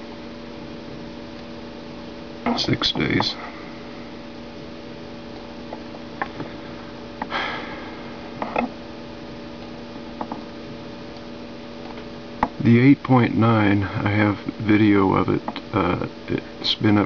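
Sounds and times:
electrical hum: 0.0 - 17.0
person sniffing: 7.3 - 8.2.

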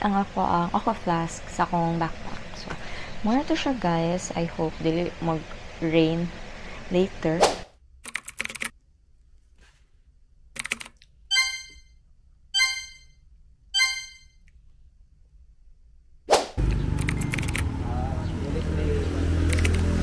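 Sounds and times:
short chime-like tones: 11.3 - 11.9, 12.6 - 13.1, 13.8 - 14.4
low engine rumble: 16.6 - 20.0.

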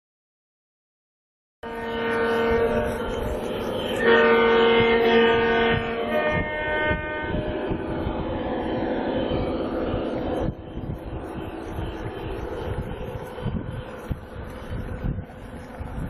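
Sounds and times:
model train multi-chime horn: 1.6 - 14.7.

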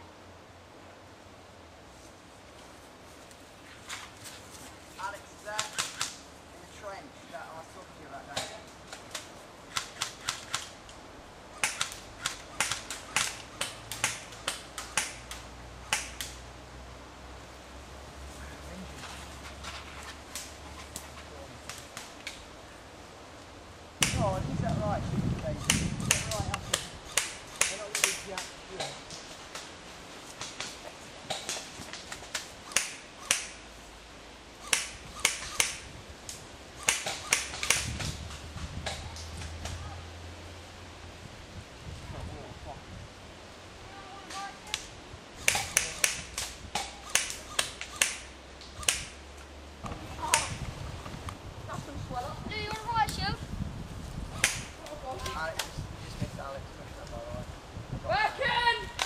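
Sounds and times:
airsoft gun shots: 11.6 - 15.2, 24.0 - 24.3, 25.6 - 29.0, 32.7 - 33.6, 34.6 - 35.9, 36.8 - 38.2, 45.4 - 49.2.

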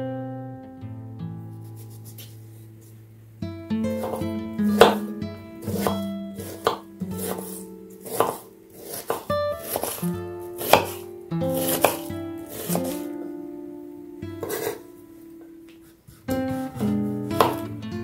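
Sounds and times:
acoustic guitar music: 0.0 - 18.0
knife chopping on wooden board: 4.0 - 13.1, 14.4 - 14.8, 16.2 - 17.7.

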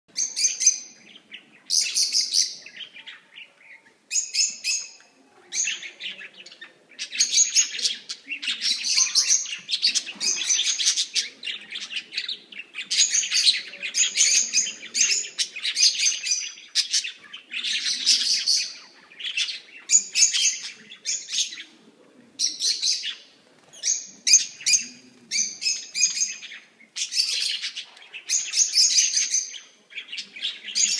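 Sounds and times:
budgerigars chirping: 0.2 - 21.6.

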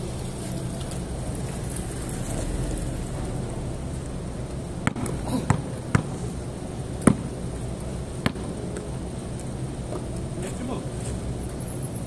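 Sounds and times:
low background rumble: 0.0 - 10.4
basketball bouncing on concrete: 4.8 - 6.2, 7.0 - 7.3, 8.2 - 8.6.

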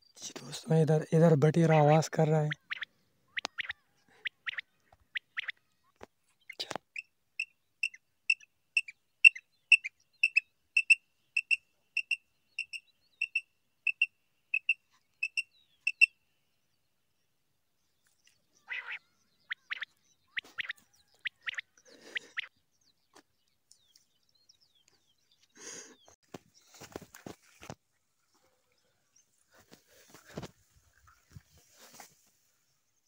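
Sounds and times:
quail piping calls: 1.6 - 5.6, 6.9 - 16.1, 18.6 - 22.5
bird chirps: 1.6 - 16.8, 17.8 - 27.0.

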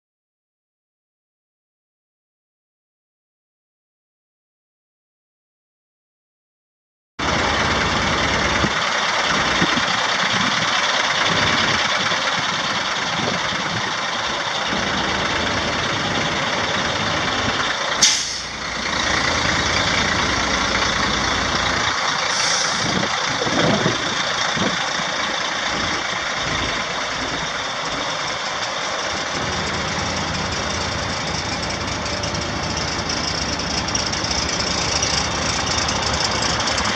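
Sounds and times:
diesel truck engine running: 7.2 - 36.9
high whine: 28.8 - 36.9.

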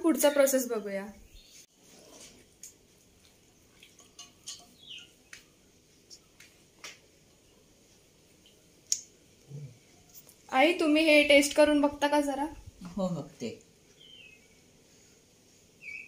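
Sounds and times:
soft wet sounds of chicken: 1.8 - 6.4.

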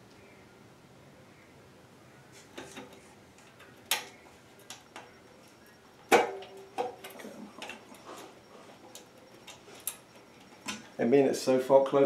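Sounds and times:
fan cover clicks and knocks: 6.1 - 7.8.

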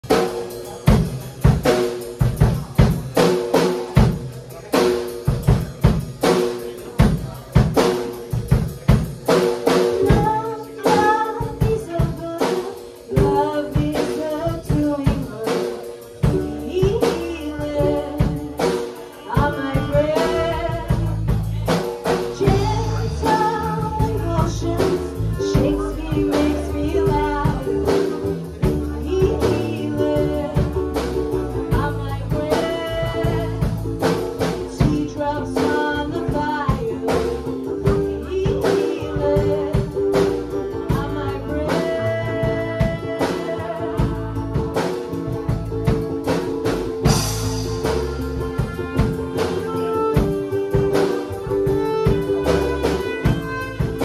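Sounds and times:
drum kit beat with rim clicks: 0.0 - 54.0
upright bass notes: 16.1 - 54.0.

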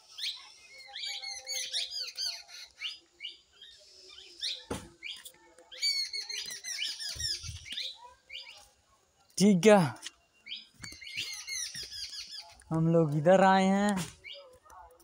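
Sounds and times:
small birds chirping: 0.0 - 15.0
single thump: 4.7 - 5.0.

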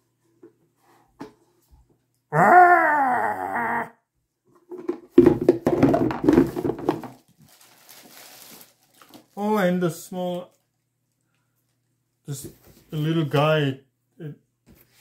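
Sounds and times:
creature growl: 2.3 - 4.0
packaging rustling and crinkling: 5.7 - 9.7.

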